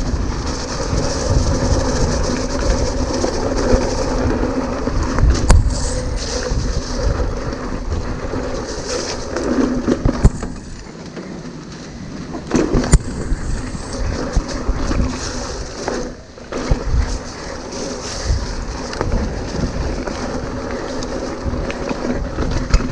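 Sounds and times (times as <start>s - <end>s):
wind rushing over microphone: 0.0s - 10.9s, 11.5s - 22.9s
bike rattling: 0.0s - 22.9s
tyres on dirt: 0.0s - 22.9s
sharp knocks over bumps: 9.8s - 11.4s.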